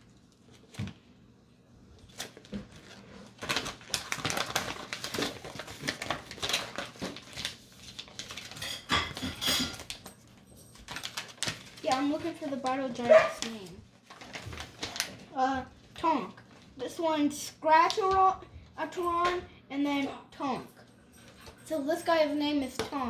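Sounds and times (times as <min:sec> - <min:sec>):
paper crinkling and rustling: 0:00.0 - 0:01.1, 0:01.9 - 0:16.8.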